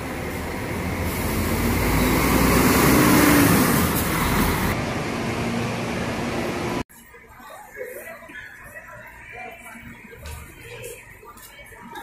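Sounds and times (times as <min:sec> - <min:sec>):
diesel coach driving past: 0:00.0 - 0:06.8.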